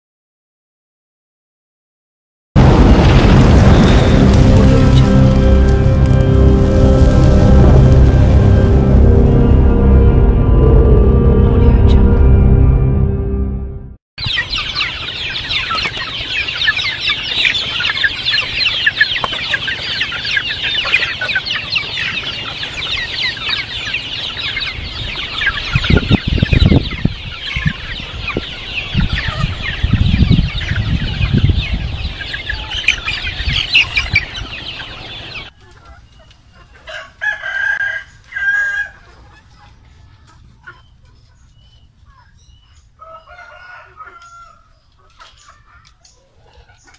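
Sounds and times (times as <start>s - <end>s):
low thumps: 2.6s - 14.0s
chicks peeping and cheeping: 14.2s - 46.9s
loud chicken calls: 14.2s - 46.9s.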